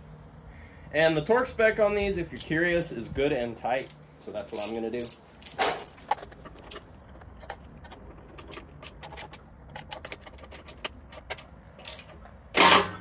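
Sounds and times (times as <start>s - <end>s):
ratchet wrench clicking: 8.4s - 13.0s.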